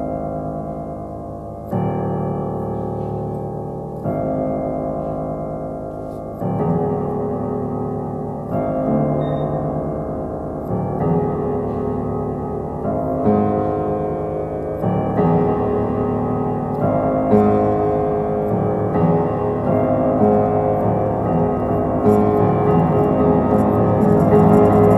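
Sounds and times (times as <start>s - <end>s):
piano chords: 0.0s - 24.9s.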